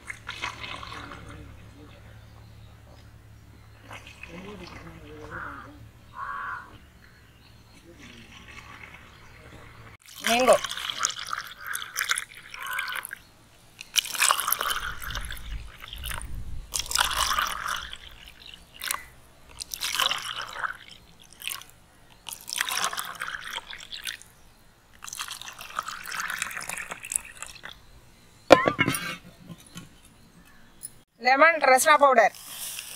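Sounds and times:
drink pouring into plastic cups: 0:00.0 - 0:01.6, 0:10.0 - 0:13.2, 0:13.8 - 0:24.3, 0:24.9 - 0:27.8.

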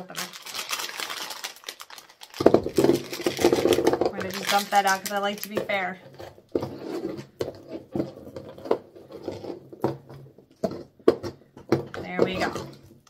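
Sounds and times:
foil eggs clicking on table: 0:00.0 - 0:05.6.

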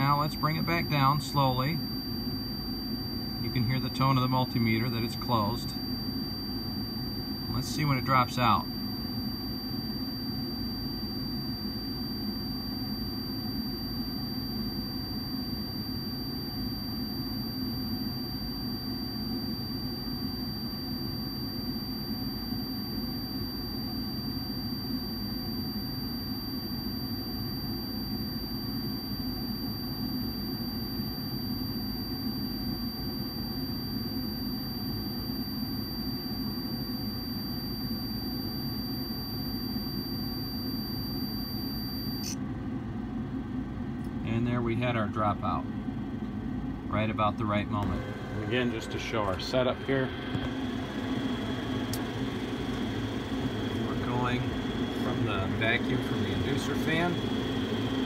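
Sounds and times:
multimeter continuity tone: 0:00.0 - 0:58.0
blower running: 0:47.7 - 0:58.0.

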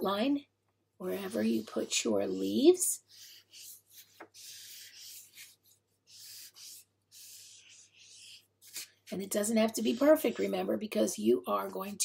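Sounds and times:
marker scratching on paper: 0:01.0 - 0:11.1.

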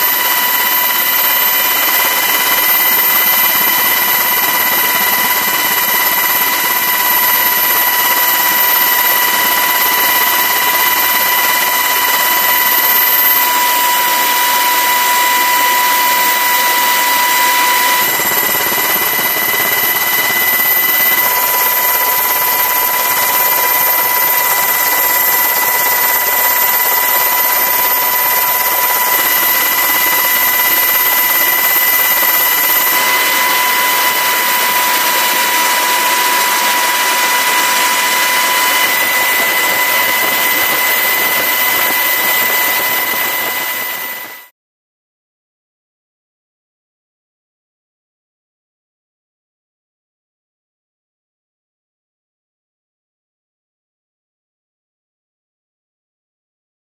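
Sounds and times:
turbine engine whine: 0:00.0 - 0:44.5.

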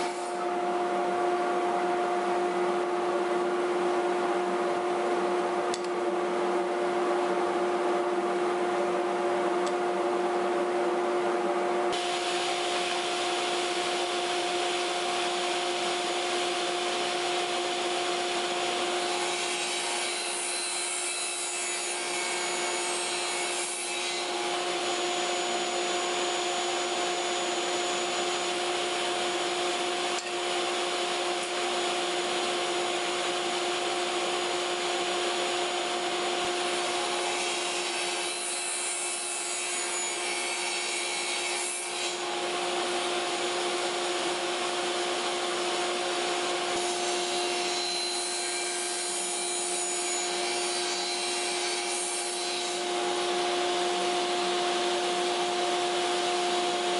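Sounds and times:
saw cutting wood: 0:00.0 - 0:00.4, 0:11.9 - 0:55.2
table saw humming: 0:00.0 - 0:00.5, 0:11.9 - 0:56.9.

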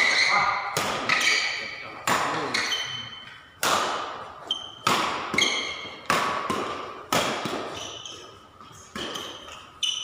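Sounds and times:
racket striking shuttlecock: 0:00.0 - 0:10.0
short high squeaks: 0:07.7 - 0:08.5, 0:09.1 - 0:10.0.

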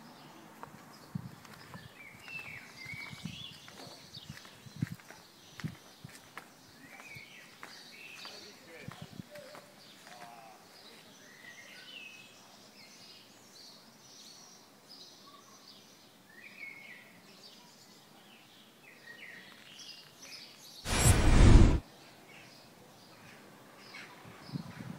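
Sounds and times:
small birds chirping: 0:00.0 - 0:20.8
faint outdoor background noise: 0:00.0 - 0:24.9
loud rush of noise: 0:20.9 - 0:21.8.

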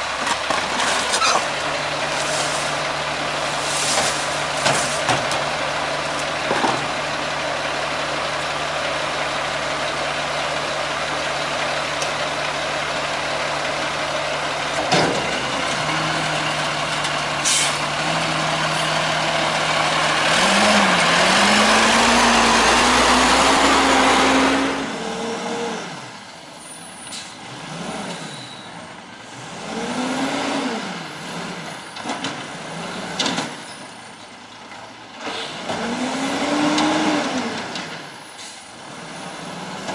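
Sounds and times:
distant garbage truck revving: 0:00.0 - 0:39.9
garbage truck diesel engine: 0:00.0 - 0:39.9.

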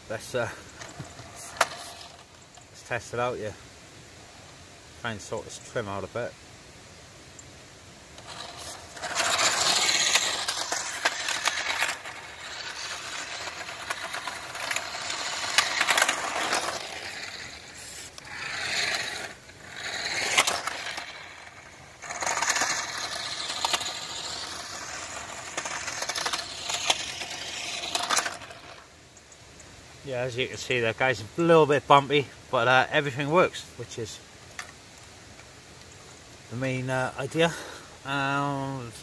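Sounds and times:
electric motor whining: 0:08.2 - 0:28.8
tyres crunching over grit: 0:08.2 - 0:28.8
small clicks and rattles: 0:08.2 - 0:29.7.

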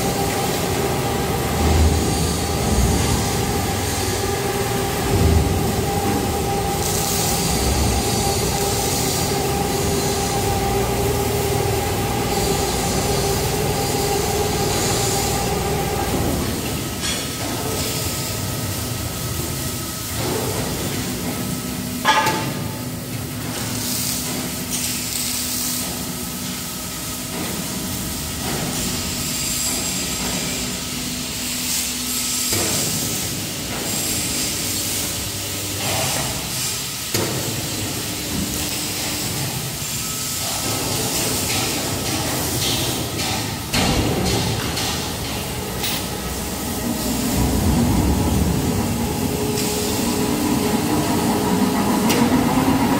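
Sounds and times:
low motor hum: 0:00.0 - 0:16.9, 0:45.0 - 0:52.9
hydraulic power unit humming: 0:00.0 - 0:52.9.

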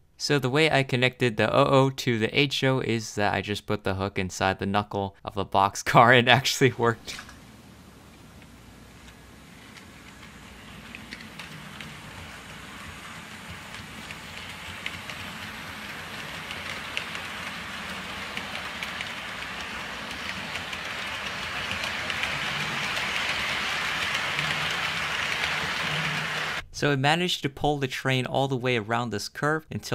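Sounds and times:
model train wheels clicking: 0:08.4 - 0:26.6.

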